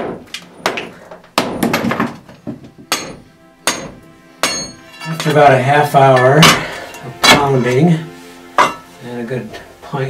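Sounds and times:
sledgehammer striking metal bar: 0:00.0 - 0:02.1, 0:02.8 - 0:05.5, 0:06.1 - 0:07.8, 0:08.6 - 0:08.9.

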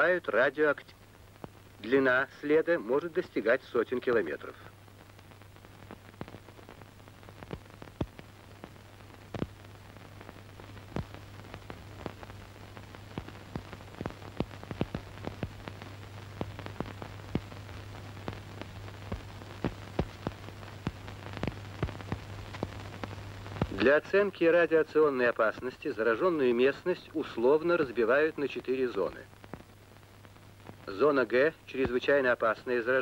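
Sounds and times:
film crackles and pops: 0:00.0 - 0:33.0
steady low hum: 0:04.4 - 0:24.1.

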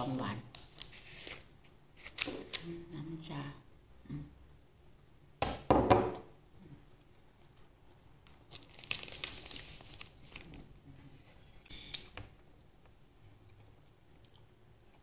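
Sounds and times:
wrapper crinkling: 0:08.3 - 0:10.7.

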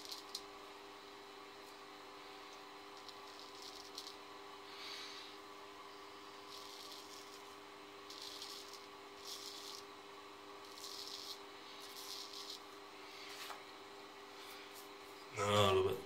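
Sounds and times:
razor scraping stubble: 0:06.5 - 0:07.5, 0:08.1 - 0:09.9, 0:10.6 - 0:12.7.

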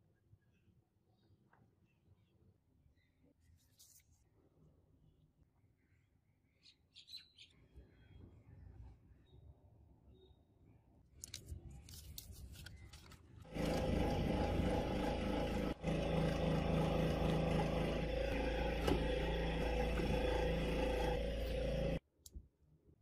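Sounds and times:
scroll saw cutting: 0:13.4 - 0:22.0.

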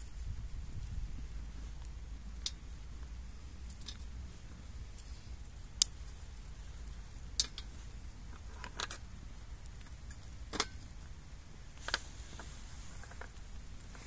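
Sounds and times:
dry twigs snapping: 0:05.7 - 0:06.2, 0:06.8 - 0:11.0.

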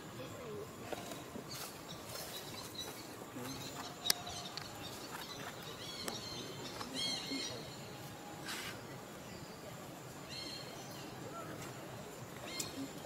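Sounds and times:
faint outdoor ambience: 0:00.0 - 0:13.0.

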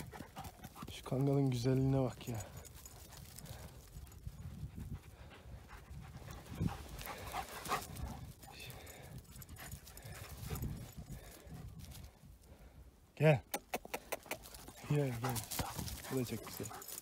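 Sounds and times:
dogs panting: 0:00.0 - 0:12.8, 0:13.7 - 0:17.0
wind rumbling on microphone: 0:03.2 - 0:12.8.

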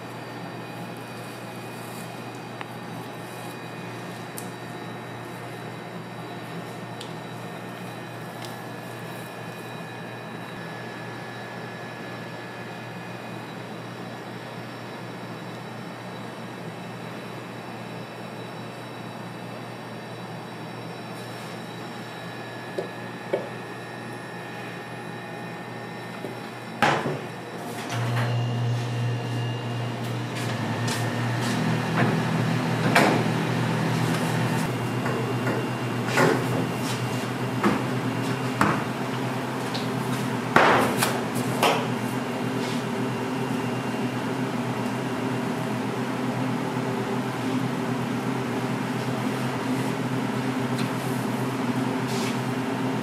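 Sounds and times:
kitchen appliance humming: 0:22.0 - 0:53.0.

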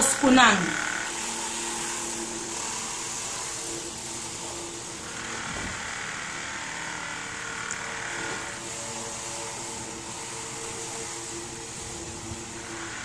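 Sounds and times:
steady hiss: 0:00.0 - 0:05.9
faint mechanical hum: 0:00.0 - 0:13.0.

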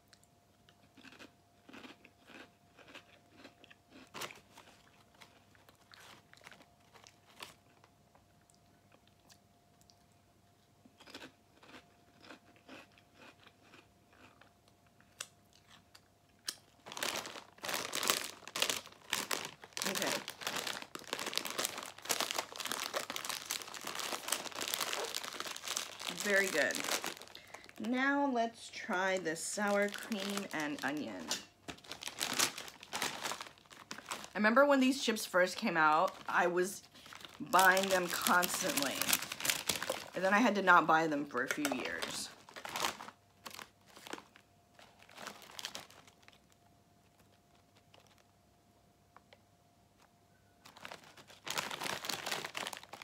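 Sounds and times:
crisps being chewed: 0:00.0 - 0:27.9, 0:29.6 - 0:34.4, 0:35.5 - 0:40.4, 0:41.4 - 0:48.4, 0:50.0 - 0:53.0
foil bag crinkling: 0:04.0 - 0:07.9, 0:16.7 - 0:48.4, 0:50.6 - 0:53.0.

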